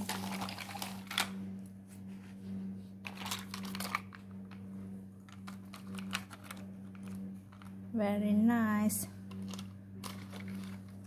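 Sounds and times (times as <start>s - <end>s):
low hum: 0.0s - 11.0s
plastic toy trucks clacking: 9.4s - 10.8s.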